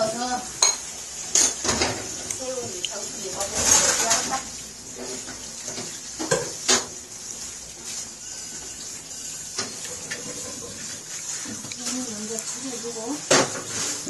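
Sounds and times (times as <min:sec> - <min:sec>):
tableware clicking: 0:00.6 - 0:02.0.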